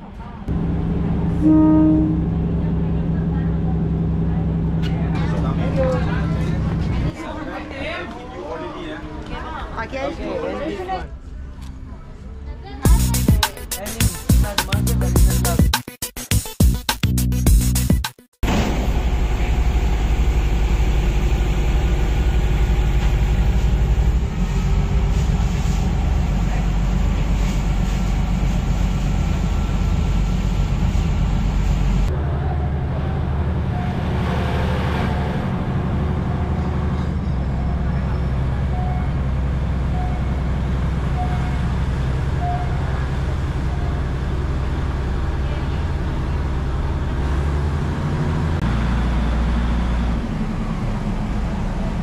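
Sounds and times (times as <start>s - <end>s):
diesel railcar engine running: 0.0s - 8.1s, 10.8s - 15.6s, 18.4s - 52.0s
people's voices: 1.4s - 15.7s.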